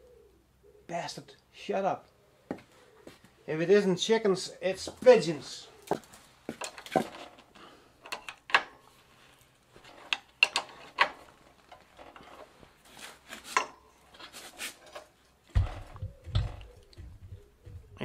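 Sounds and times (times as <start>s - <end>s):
dull thump: 15.5s - 18.0s.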